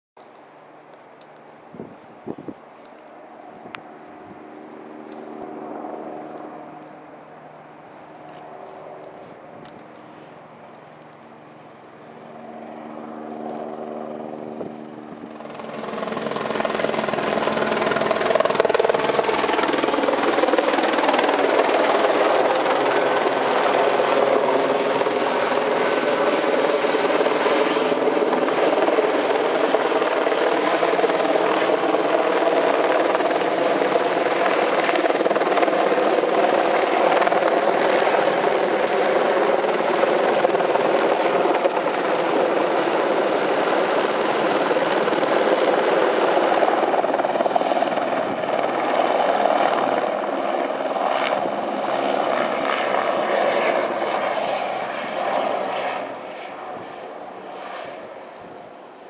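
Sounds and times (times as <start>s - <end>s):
helicopter rotor and engine: 1.3s - 59.0s.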